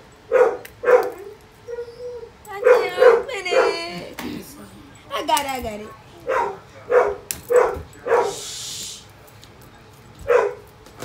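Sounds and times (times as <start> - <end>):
dog barking: 0.3 - 1.2, 2.6 - 3.8, 6.2 - 8.4, 10.2 - 10.7.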